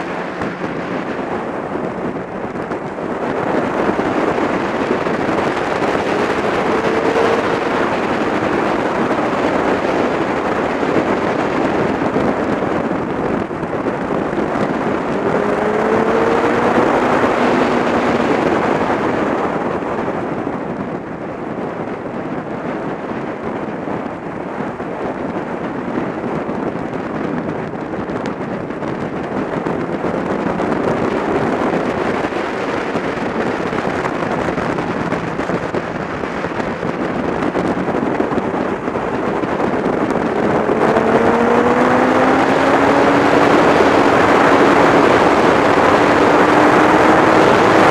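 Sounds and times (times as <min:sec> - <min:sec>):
motorcycle engine: 0:00.0 - 0:47.9
wind rush over microphone: 0:00.0 - 0:47.9.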